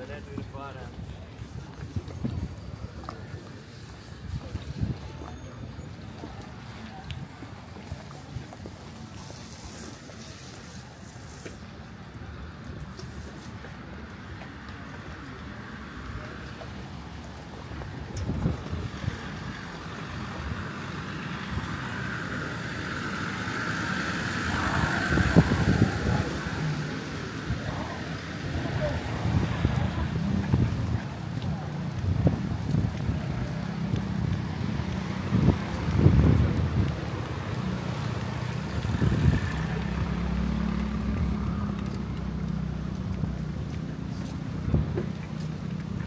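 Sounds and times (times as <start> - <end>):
vehicle engine approaching: 15.0 - 46.0.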